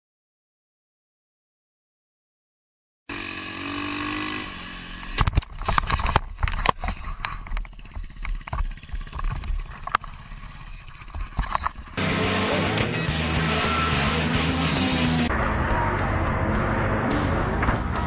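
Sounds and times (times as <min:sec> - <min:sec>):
motorcycle crashing and sliding: 0:03.1 - 0:12.0
dirt bike engine running: 0:03.1 - 0:15.3
music: 0:12.0 - 0:18.0.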